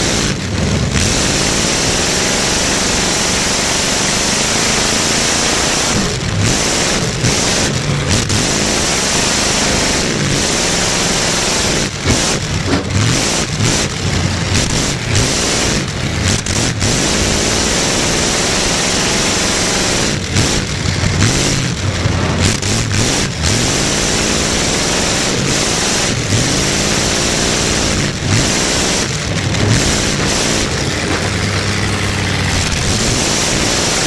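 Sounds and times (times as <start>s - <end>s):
car engine revving loudly: 0.0s - 34.0s.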